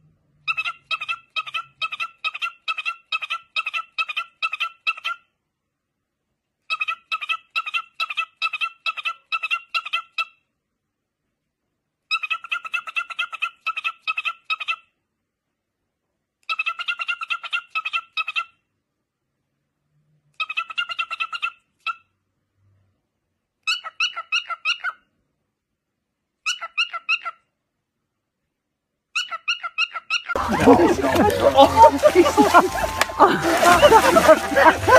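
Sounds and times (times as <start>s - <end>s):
cockatiel chirping: 23.7s - 25.0s, 26.4s - 27.4s, 29.2s - 30.3s.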